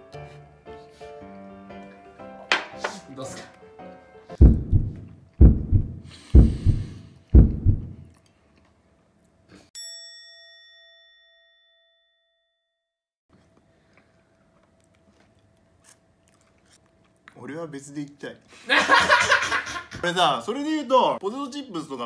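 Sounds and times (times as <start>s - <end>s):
heartbeat thuds: 4.4s - 8.1s
bell ding: 9.8s - 12.6s.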